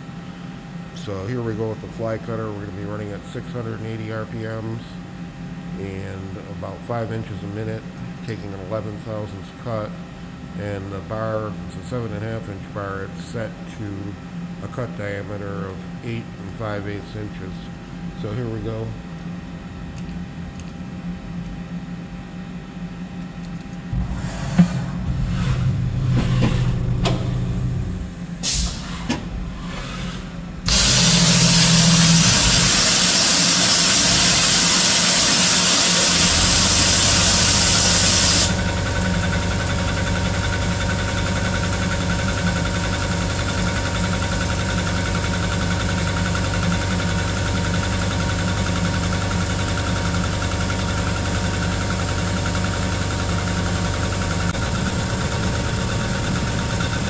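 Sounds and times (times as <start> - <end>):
milling machine running: 23.8 - 57.0
loud even hiss: 23.9 - 38.6.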